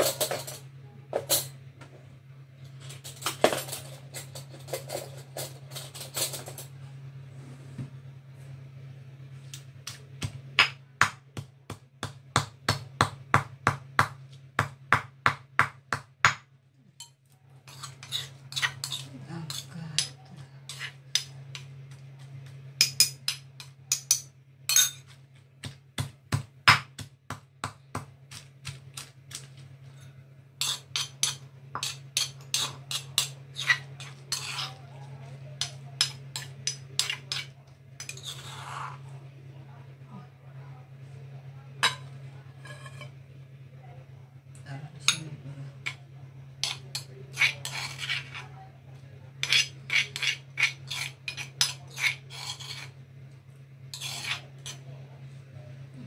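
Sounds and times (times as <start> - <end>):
stone pestle pounding in mortar: 10.2 - 16.5, 25.6 - 29.4
metal spoon scraping: 17.0 - 21.7, 30.6 - 34.9, 35.6 - 39.1, 41.8 - 43.2, 46.6 - 48.5, 49.4 - 53.0, 53.9 - 54.8.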